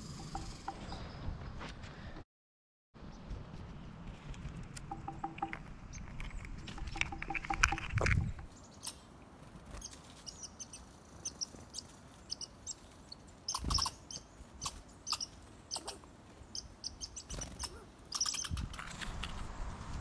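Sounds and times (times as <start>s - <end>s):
small songbirds chirping: 4.9s - 18.8s.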